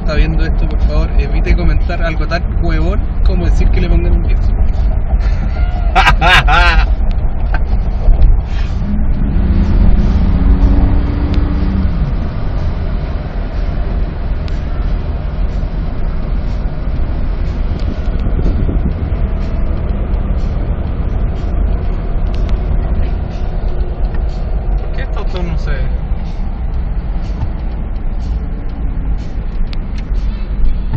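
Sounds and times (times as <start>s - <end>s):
car cabin road rumble: 0.0s - 30.9s
humming tone: 8.1s - 24.9s.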